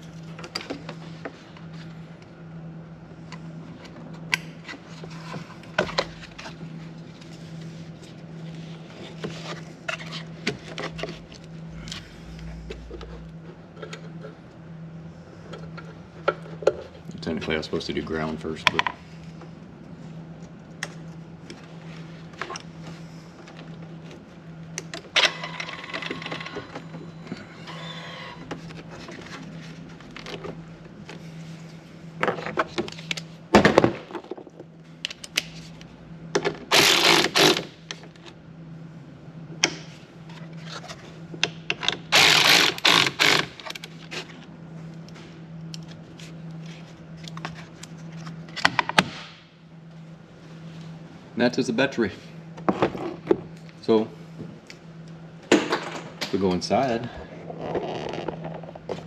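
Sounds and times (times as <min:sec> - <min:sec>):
steady low hum: 0:00.0 - 0:59.0
cordless ratchet spinning: 0:42.2 - 0:43.6.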